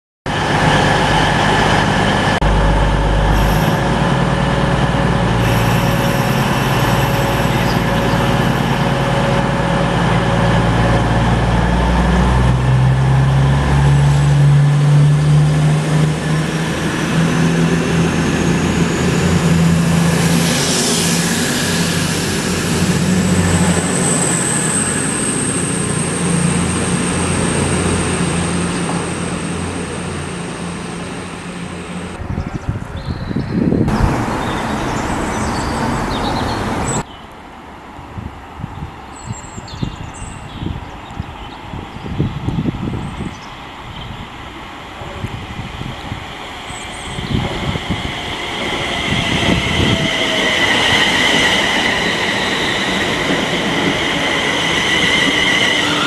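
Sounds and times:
diesel train engines pulling away: 0.3 - 37.1, 40.9 - 56.0
high steady squeal: 0.7 - 12.0, 16.2 - 32.2, 46.5 - 56.0.

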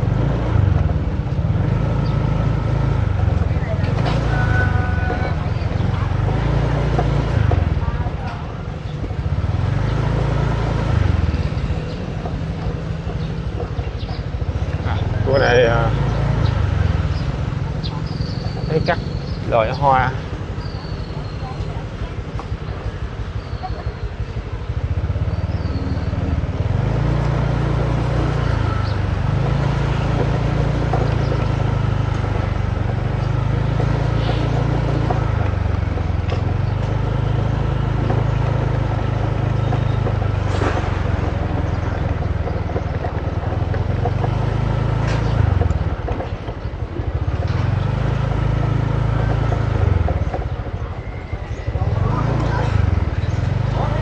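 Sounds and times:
motorbike engine revving: 0.0 - 54.0.

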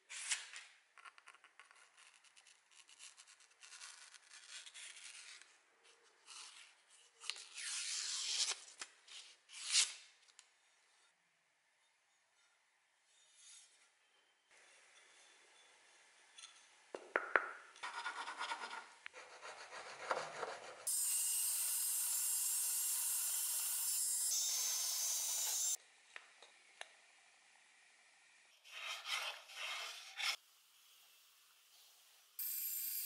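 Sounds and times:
band saw cutting wood: 20.8 - 25.8.

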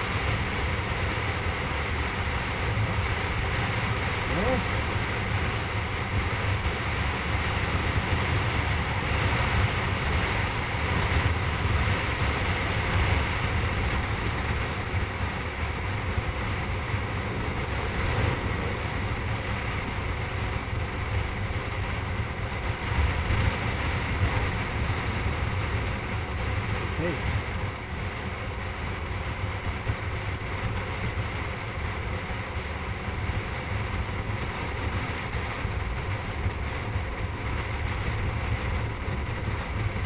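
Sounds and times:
motorcycle engine: 0.0 - 40.0
wind buffeting microphone: 4.8 - 27.9.

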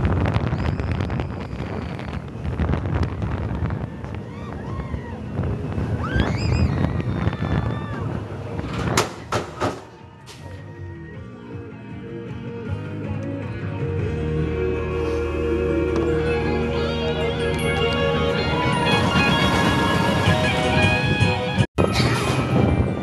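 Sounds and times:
wind buffeting microphone: 0.0 - 9.8, 18.0 - 23.0
roller coaster rumbling on track: 0.0 - 23.0
riders shouting and screaming: 3.0 - 8.3.

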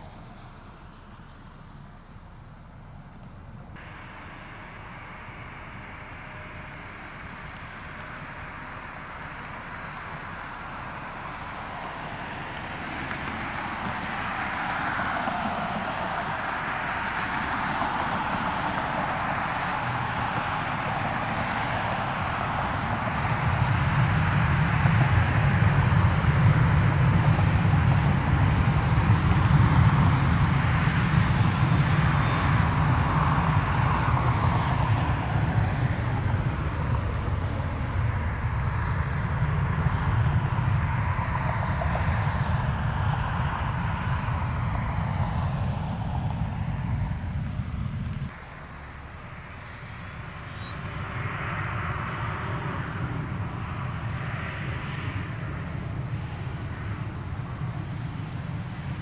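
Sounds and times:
jet airliner roar and whine: 0.0 - 59.0.

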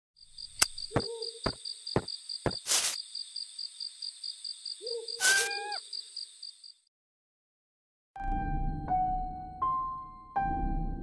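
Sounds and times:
insects chirping: 0.2 - 6.9
owl hooting: 0.9 - 1.4, 4.8 - 5.9
short hiss: 2.5 - 3.0.

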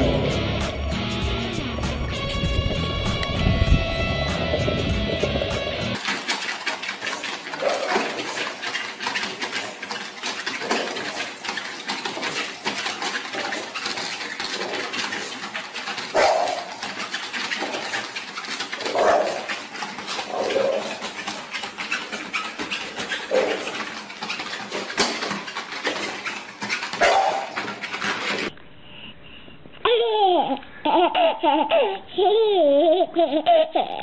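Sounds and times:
dog claws scratching treadmill belt: 1.8 - 28.5
dog vocal sounds: 7.5 - 8.5, 13.3 - 24.5, 26.9 - 27.8.

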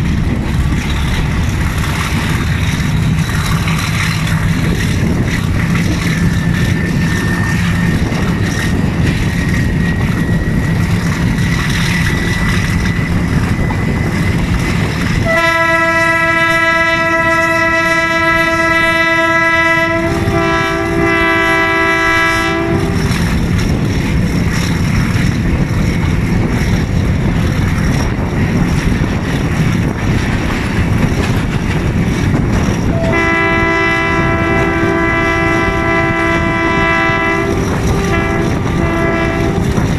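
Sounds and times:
diesel locomotive engine under load: 0.0 - 39.9
wheel and rail clatter: 0.0 - 39.9
locomotive horn: 15.2 - 23.4, 32.9 - 39.9.

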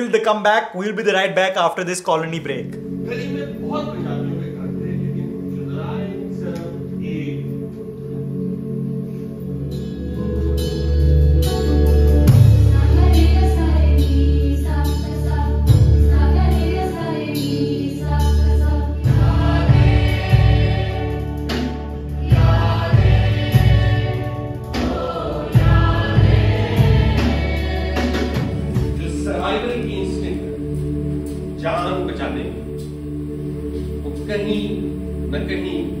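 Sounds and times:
instrumental accompaniment with bass: 2.5 - 36.0
choir singing: 11.4 - 36.0.

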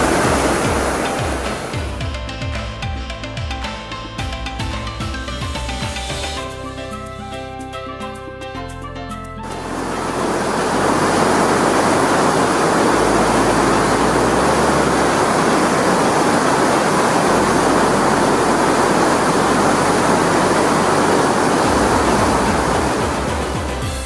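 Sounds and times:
waterfall rushing: 0.0 - 2.0, 9.4 - 24.0.

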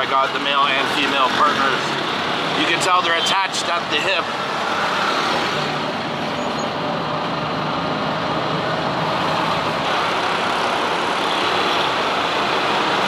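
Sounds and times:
engine and road noise: 0.0 - 13.0
street traffic: 0.0 - 13.0.

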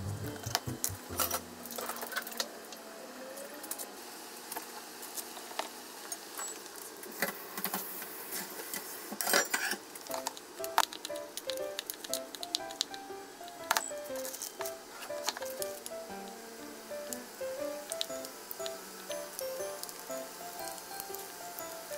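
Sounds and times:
quiet background music: 0.0 - 1.9, 10.0 - 21.9.

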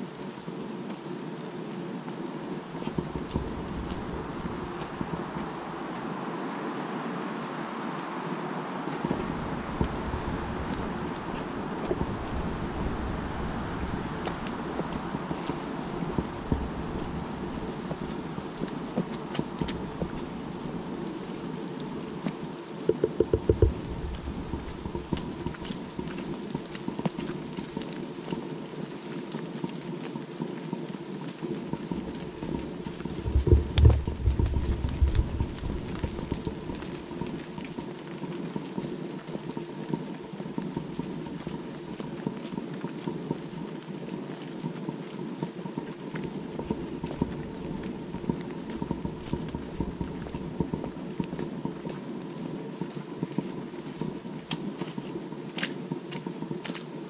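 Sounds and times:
rain pattering on leaves: 0.0 - 57.0
footsteps on wet dirt path: 2.0 - 6.5, 8.9 - 57.0
wind buffeting microphone: 2.7 - 6.7, 7.8 - 27.6, 31.7 - 38.2, 46.2 - 54.6.

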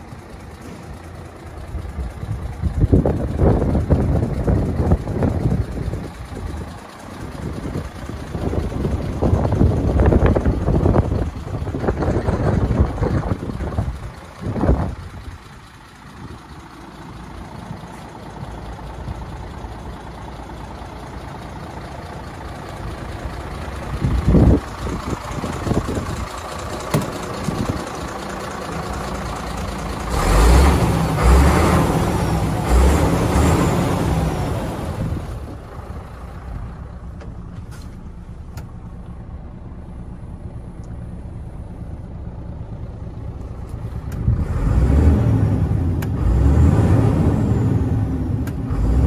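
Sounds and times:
truck diesel engine running: 0.0 - 49.0
engine revving: 29.3 - 35.6, 44.0 - 49.0.

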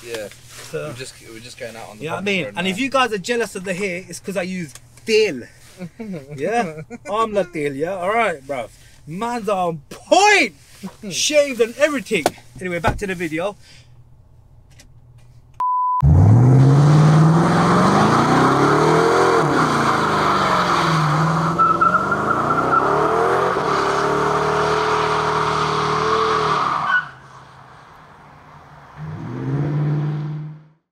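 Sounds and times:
short steady beep: 15.6 - 16.1
pickup engine revving hard: 16.0 - 27.0, 29.0 - 30.7.

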